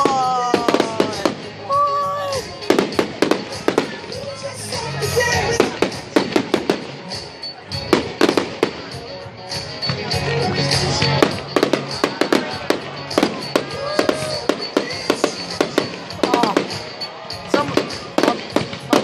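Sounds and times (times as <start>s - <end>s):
fireworks bangs and pops: 0.0s - 1.6s, 2.4s - 19.0s.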